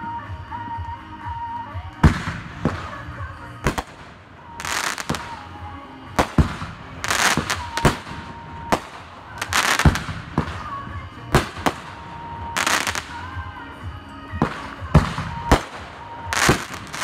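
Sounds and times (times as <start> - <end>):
firework crackling: 2.0 - 17.0
firework shells bursting: 6.2 - 13.4, 14.4 - 17.0.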